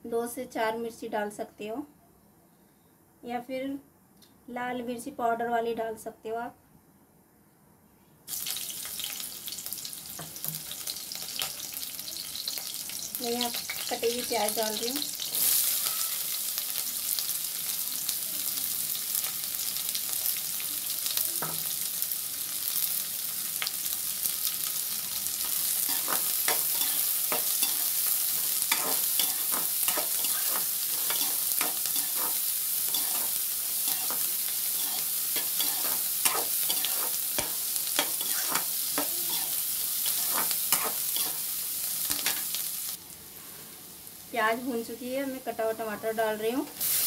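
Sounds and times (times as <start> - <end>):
onions sizzling in oil: 8.3 - 47.0
spatula scraping metal pan: 25.8 - 41.4.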